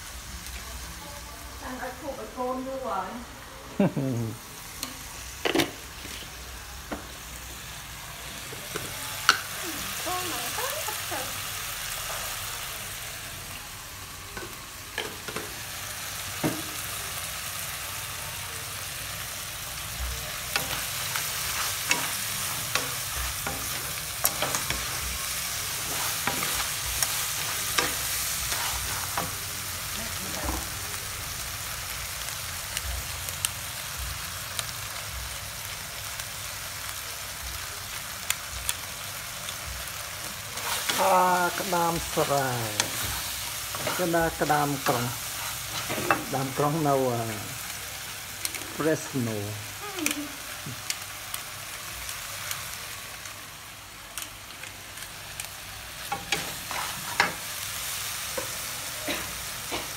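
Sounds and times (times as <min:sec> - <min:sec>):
food sizzling in a wok: 0:00.0 - 0:59.9
spatula scraping a wok: 0:40.6 - 0:46.4, 0:56.0 - 0:57.5.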